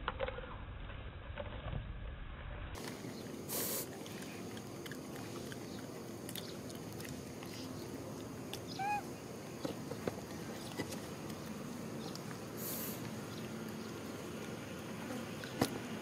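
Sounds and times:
rustle: 2.6 - 16.0
monkey squeaky call: 8.7 - 9.1.

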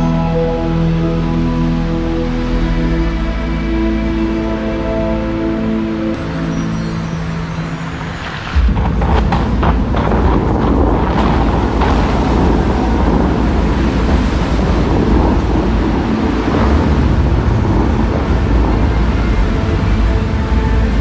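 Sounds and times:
fountain water rushing and splashing: 0.0 - 21.0
wind buffeting microphone: 4.6 - 21.0.

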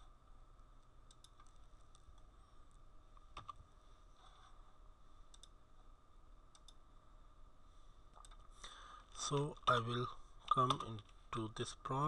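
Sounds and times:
faint electrical hum: 0.0 - 12.0
computer clicks: 1.0 - 2.0, 5.3 - 5.6, 6.5 - 6.8, 8.1 - 8.5, 10.5 - 11.2.

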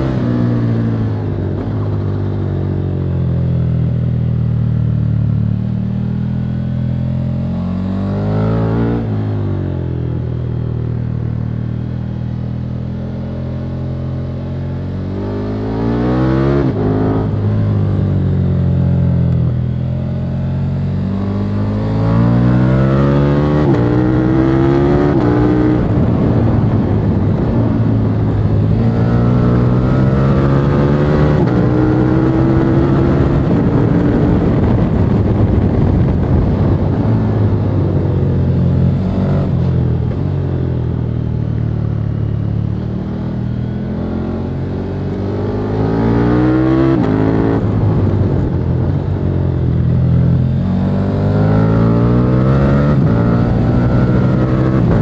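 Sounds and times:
motorcycle engine accelerating through gears: 0.0 - 55.0.

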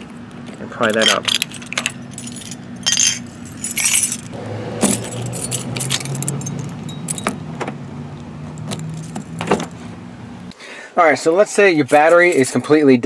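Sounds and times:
keys jangling in a hand: 1.0 - 7.4, 11.9 - 12.7
low hum: 4.3 - 10.5.

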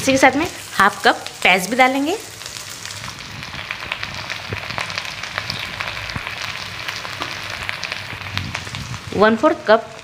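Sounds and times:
vegetables frying in oil: 0.0 - 10.0
crackling pops: 2.3 - 9.0.

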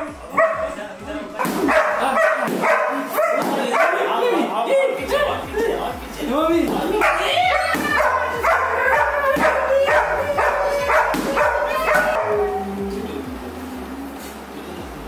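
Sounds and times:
dog yipping barks: 0.4 - 0.7, 1.4 - 4.2, 7.0 - 12.4.

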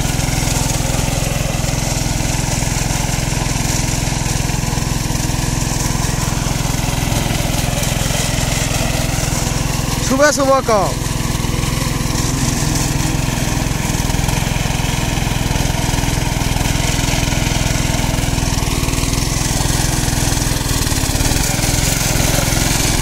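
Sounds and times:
small petrol engine running: 0.0 - 23.0.

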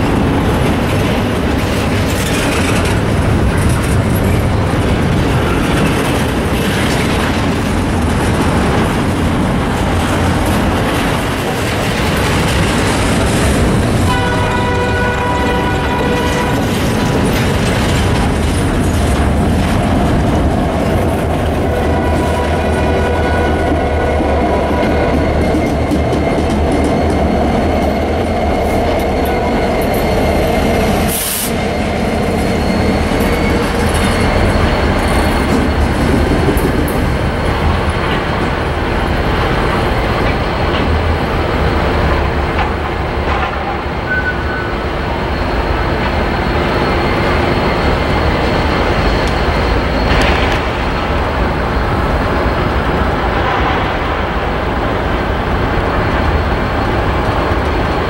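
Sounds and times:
train wheels rumbling on track: 0.0 - 58.0
high-pitched wheel squeal: 43.8 - 50.3.

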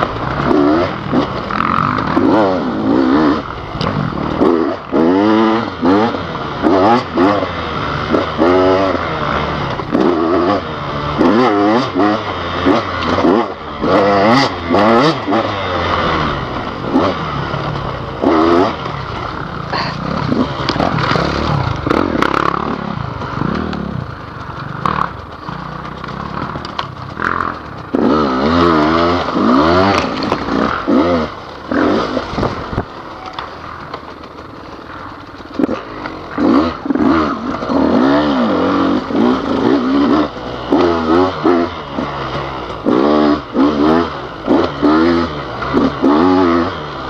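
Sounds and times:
dirt bike engine revving: 0.0 - 47.0
bike knocks and rattles: 16.0 - 40.7.

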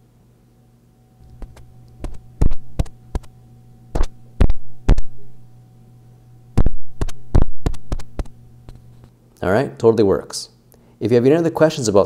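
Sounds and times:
steady low hum: 0.0 - 12.0
fingertip tapping on microphone: 1.2 - 3.3, 3.9 - 5.3, 6.6 - 8.9.

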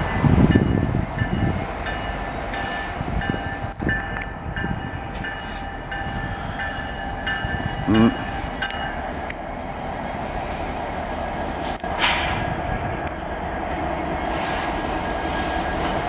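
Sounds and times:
train bell ringing: 0.0 - 9.3, 12.6 - 13.1
diesel locomotives rumbling: 0.0 - 16.0.

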